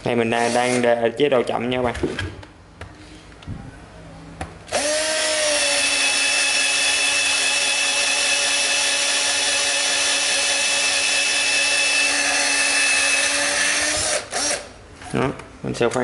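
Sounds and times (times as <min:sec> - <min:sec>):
cordless drill boring into wood: 0:04.7 - 0:14.7.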